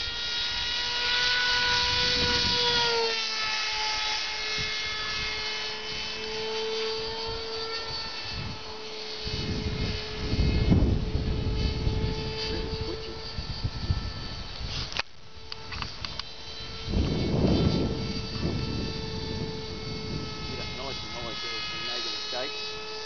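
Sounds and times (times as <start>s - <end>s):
model airplane engine whine: 0.0s - 23.0s
wind buffeting the microphone: 1.6s - 3.0s, 4.4s - 6.3s, 7.0s - 22.0s.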